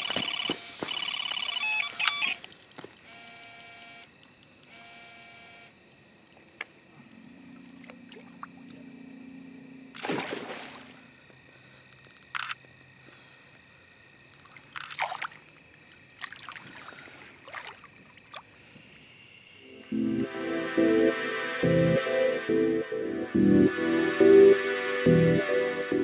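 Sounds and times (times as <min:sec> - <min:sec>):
bite alarm beeping: 0:00.0 - 0:02.4
lower alarm tone: 0:19.6 - 0:26.0.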